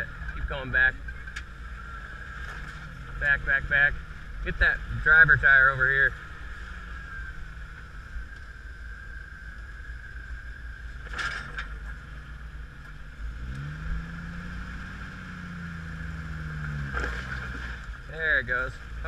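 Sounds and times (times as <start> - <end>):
engine revving under load: 10.8 - 19.0.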